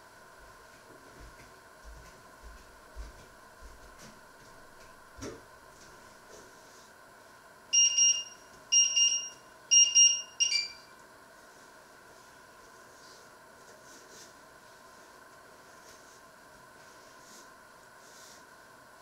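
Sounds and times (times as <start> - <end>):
appliance beeps: 7.7 - 11.0.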